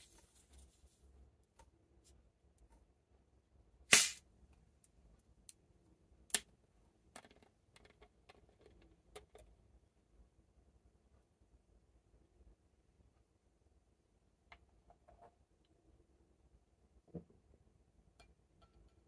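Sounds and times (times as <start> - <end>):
gas hissing from soda bottle: 3.9 - 4.2.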